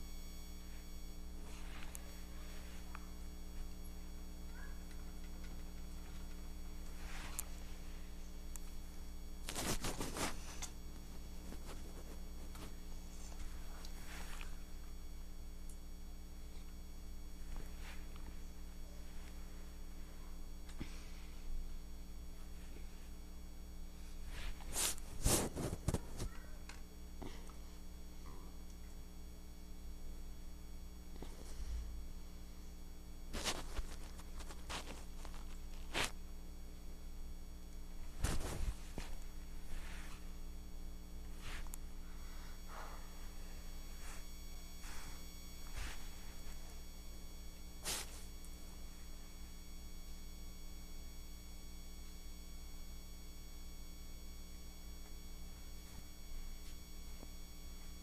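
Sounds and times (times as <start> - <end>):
steady low hum: 0.0 - 58.0
brief rustling scrape: 9.5 - 10.8, 47.8 - 48.3
soft scuffing swishes: 38.2 - 40.3, 44.8 - 46.5.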